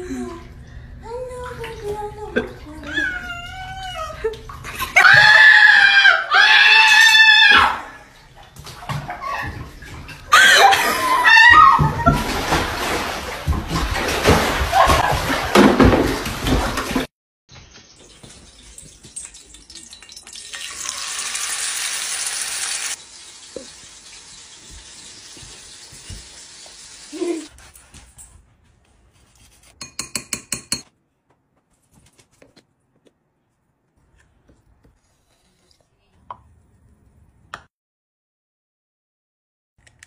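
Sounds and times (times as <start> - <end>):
steak sizzling in a pan: 20.4 - 27.5.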